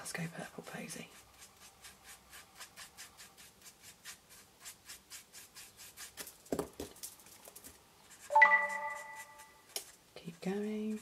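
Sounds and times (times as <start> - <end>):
marker scratching on cardstock: 0.5 - 6.3, 8.0 - 11.0.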